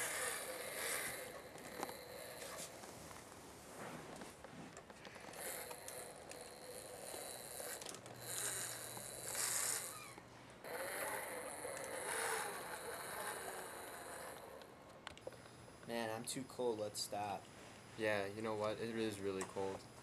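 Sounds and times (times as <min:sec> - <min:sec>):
toy truck motor whirring: 0:00.0 - 0:03.2, 0:05.1 - 0:15.6.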